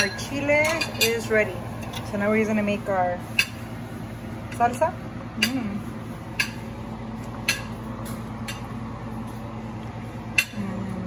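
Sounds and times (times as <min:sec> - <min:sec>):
pot boiling: 0:00.0 - 0:11.0
stove humming: 0:00.0 - 0:11.0.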